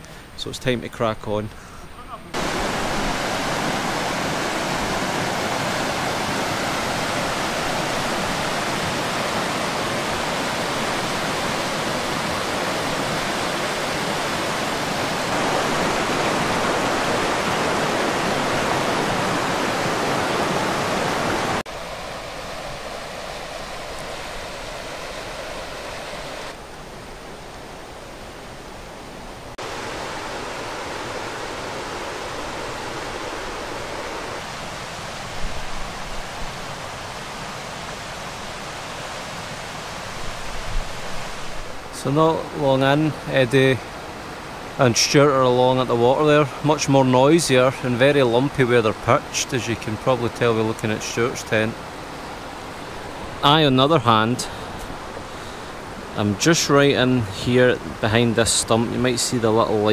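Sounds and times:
river rushing over rapids: 2.1s - 59.9s.

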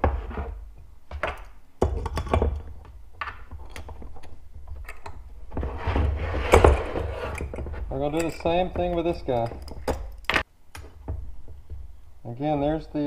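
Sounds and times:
metal clicks and knocks: 1.1s - 5.4s, 7.4s - 11.9s
metal scraping and handling: 1.4s - 13.0s.

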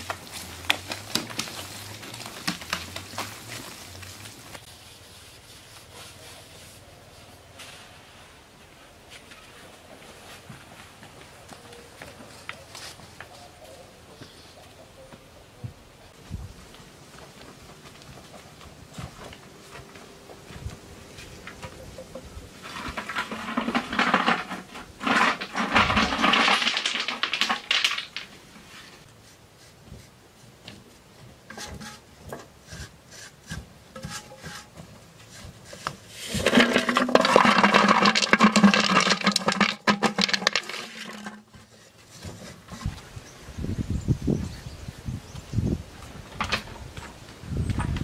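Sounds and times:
rough scraping on stone wall: 22.6s - 30.0s, 31.5s - 43.1s.

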